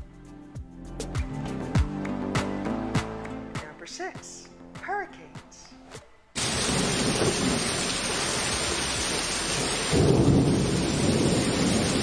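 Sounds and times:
heavy storm rain: 6.4s - 12.0s.

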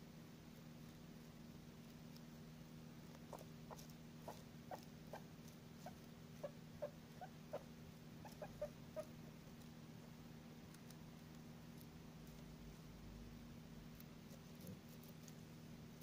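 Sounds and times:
guinea pig squeaking: 3.1s - 9.3s.

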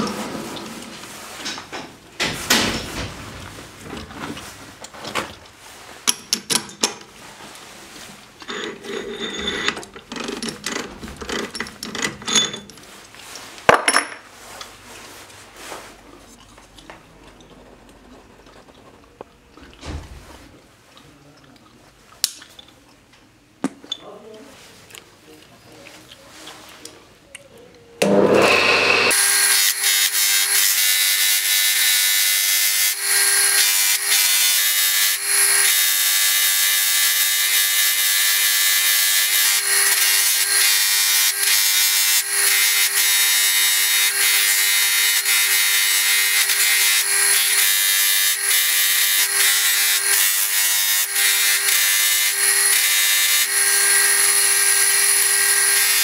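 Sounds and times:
metal rubbing on buffing wheel: 8.4s - 9.8s
buffing wheel motor hum: 28.0s - 29.2s.

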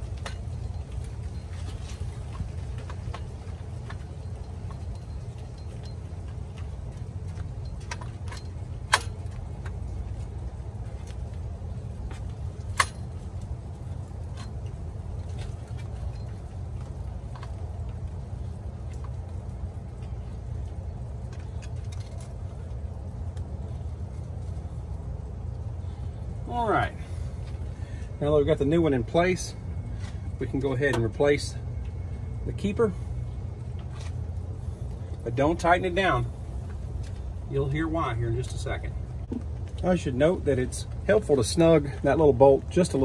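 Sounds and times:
light metallic clicks and taps: 0.0s - 10.3s.

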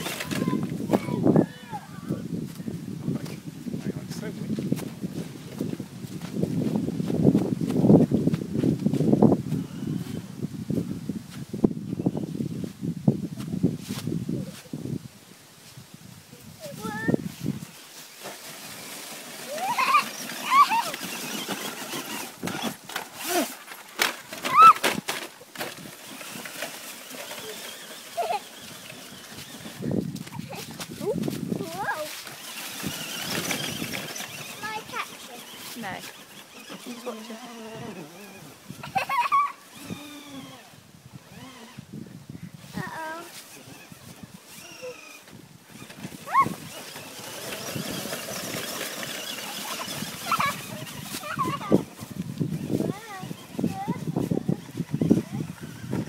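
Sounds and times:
toy truck driving: 0.0s - 2.1s, 9.4s - 10.3s, 16.7s - 41.8s, 42.7s - 56.0s
rising-and-falling calls: 19.4s - 22.4s, 46.2s - 51.8s.

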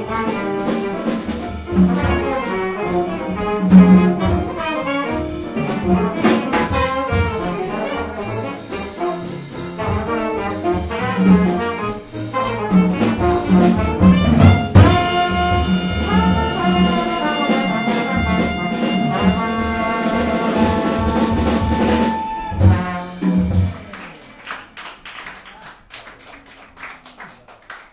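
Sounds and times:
jazz combo playing: 0.0s - 24.8s
people clapping: 23.6s - 27.9s.

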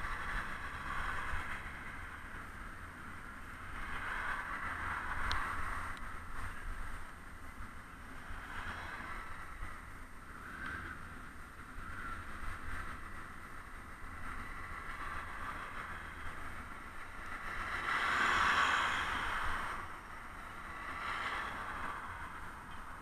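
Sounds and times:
wind and road noise: 0.0s - 23.0s
car passing close by: 17.4s - 20.0s.

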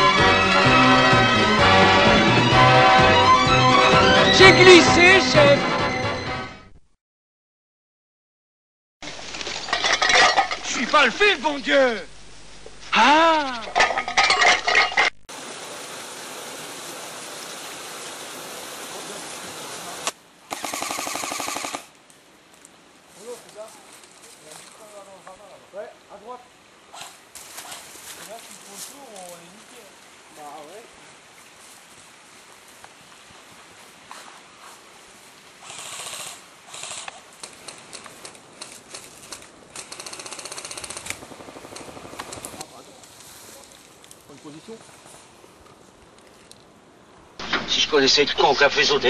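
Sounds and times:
steady hiss: 9.0s - 13.8s, 15.3s - 49.0s
airsoft gun firing full-auto: 20.5s - 21.9s
rapid full-auto burst: 20.5s - 21.9s, 39.8s - 42.6s
rustling rushes: 26.9s - 46.8s.

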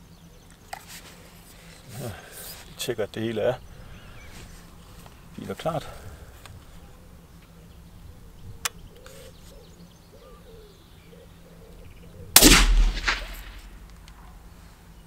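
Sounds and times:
suppressed rifle shot: 12.4s - 14.0s
sharp click: 12.4s - 14.2s
weaker crack: 12.4s - 14.2s.

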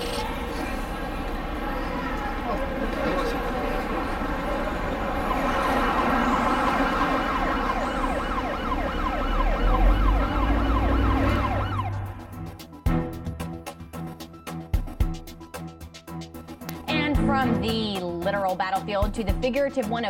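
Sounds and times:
city noise rumble: 0.0s - 14.5s
emergency siren yelping: 4.6s - 12.6s.

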